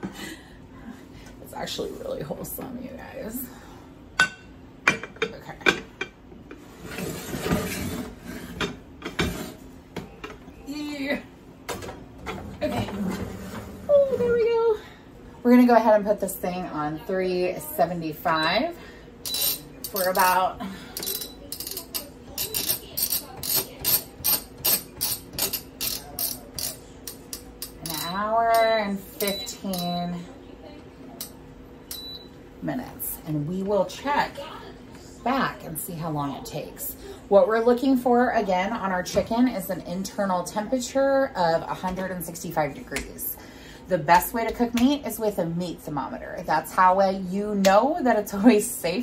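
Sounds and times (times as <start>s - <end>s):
dish scraping on wire rack: 6.7s - 9.6s.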